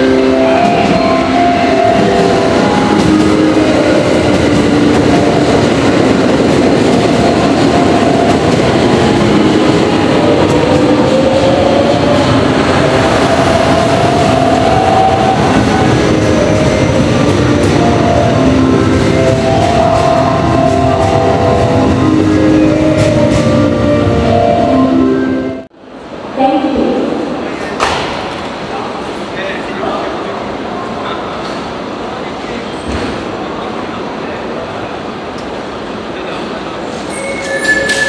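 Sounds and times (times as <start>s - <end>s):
train rolling and rumbling: 0.0s - 26.4s.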